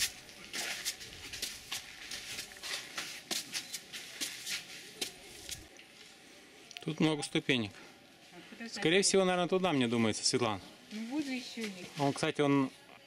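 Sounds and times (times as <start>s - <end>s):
footsteps climbing steps: 0.0s - 5.7s.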